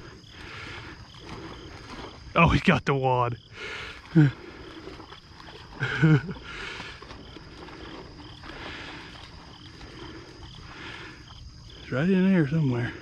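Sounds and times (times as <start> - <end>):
insect chirring: 0.0 - 13.0
man's wordless call: 2.3 - 3.4, 11.8 - 13.0.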